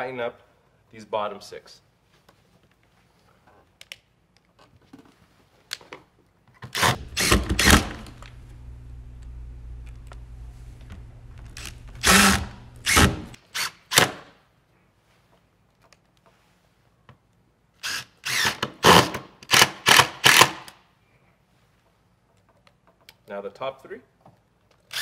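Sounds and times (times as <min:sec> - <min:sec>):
cordless drill spurts: 0:06.7 - 0:13.7.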